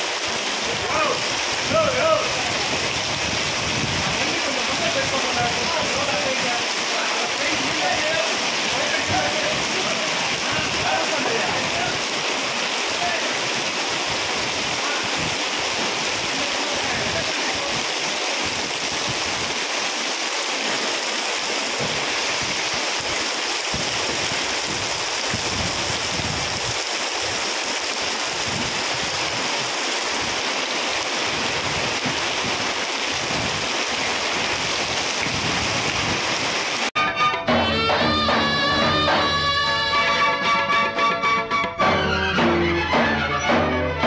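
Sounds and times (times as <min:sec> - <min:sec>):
rain falling: 0:00.0 - 0:37.0
music: 0:37.0 - 0:44.0.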